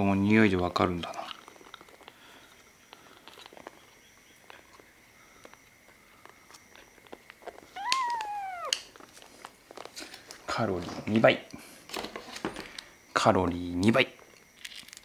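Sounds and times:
kitten meowing: 0:07.8 - 0:08.8.

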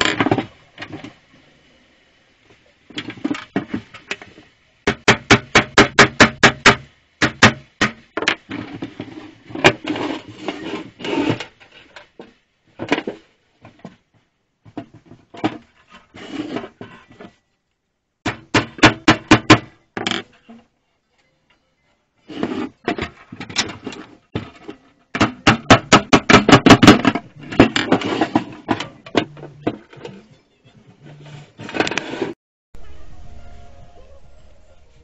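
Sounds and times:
metal scraping and rattling: 0:22.3 - 0:30.3
metal toolbox knocking on wood: 0:24.4 - 0:30.2.

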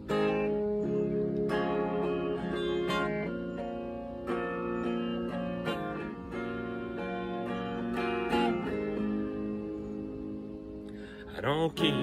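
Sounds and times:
electric guitar chords: 0:00.0 - 0:12.0.

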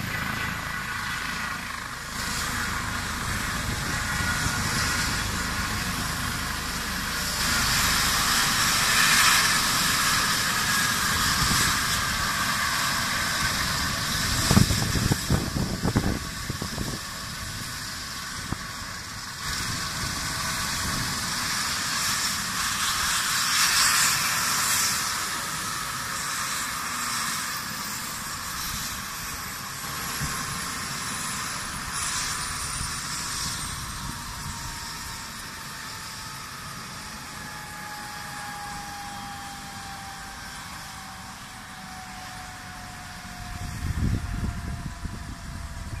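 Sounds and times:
helicopter turbine and rotor: 0:00.0 - 0:46.0
faint falling whine: 0:27.6 - 0:46.0.

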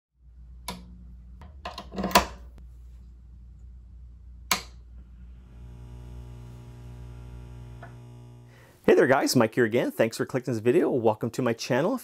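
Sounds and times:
amp speaker buzzing hum: 0:02.6 - 0:09.2
amp toggle switch clicks: 0:04.5 - 0:04.8
cable plugged into jack pop: 0:05.5 - 0:08.5.

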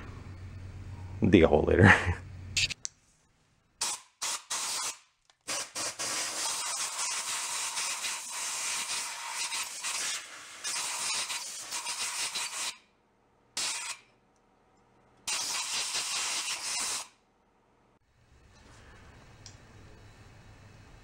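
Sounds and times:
compressed air blow gun hissing: 0:03.8 - 0:12.7.

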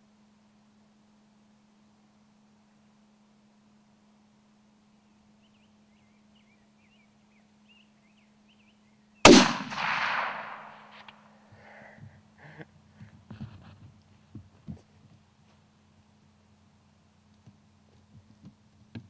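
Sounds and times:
rifle shot with echo: 0:09.2 - 0:11.2.

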